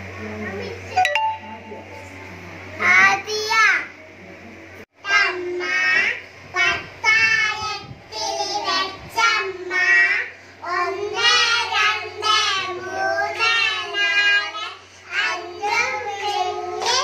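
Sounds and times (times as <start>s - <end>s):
children singing into a microphone: 5.1s - 17.0s.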